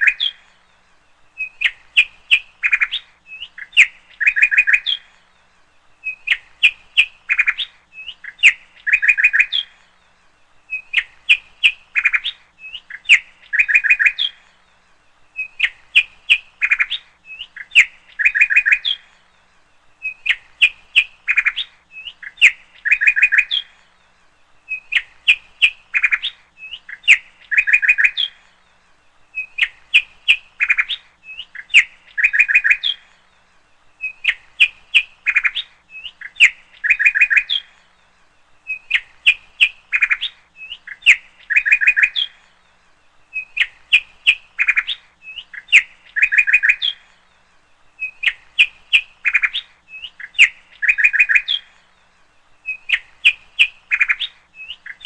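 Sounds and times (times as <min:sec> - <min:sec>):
bird chirping and trilling: 0:00.0 - 0:55.0.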